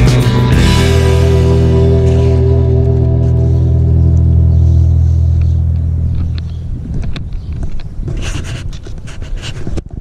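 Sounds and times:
background music: 0:00.0 - 0:05.2
wind buffeting microphone: 0:03.3 - 0:10.0
scrapes and rustles of movement: 0:06.3 - 0:10.0.

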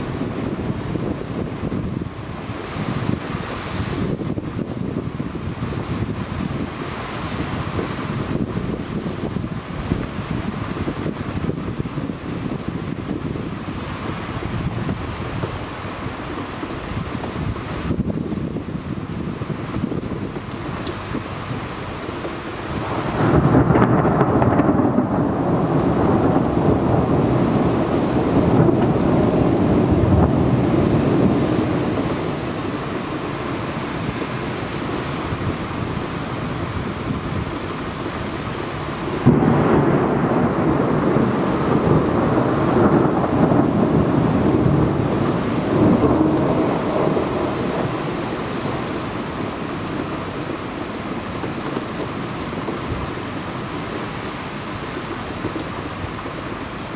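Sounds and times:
steady rain: 0:00.0 - 0:56.9
thunder rolling: 0:22.7 - 0:53.1.

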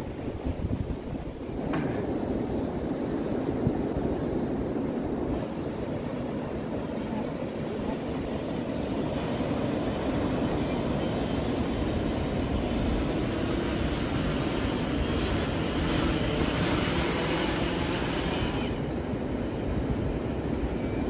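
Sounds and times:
drone rotors buzzing: 0:09.1 - 0:19.1.

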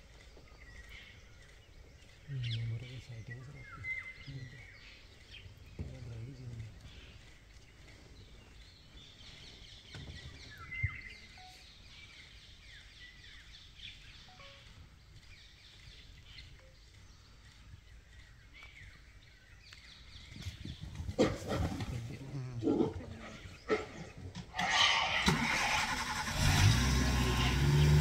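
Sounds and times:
wild birds calling: 0:00.0 - 0:28.0.

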